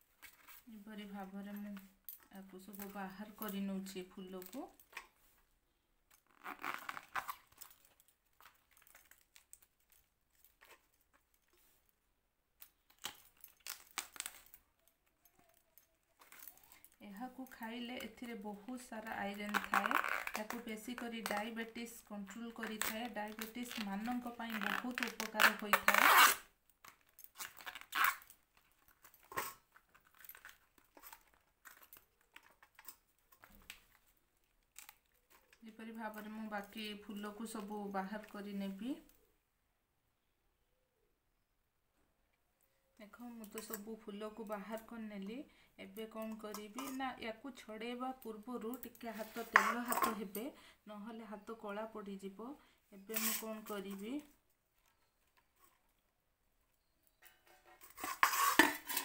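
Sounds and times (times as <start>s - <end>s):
crinkling tearing rustles: 6.2s - 11.9s, 12.8s - 17.0s, 22.6s - 35.6s, 57.8s - 59.0s.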